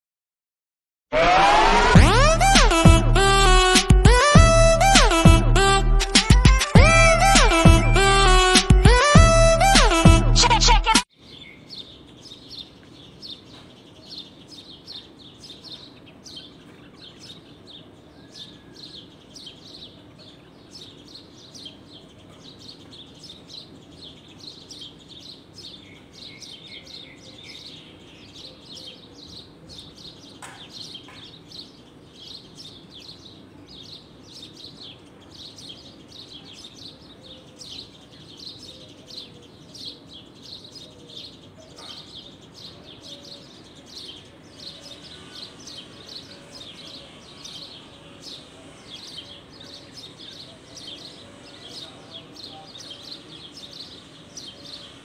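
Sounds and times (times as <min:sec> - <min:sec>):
birds chirping: 0:11.2 - 0:55.0.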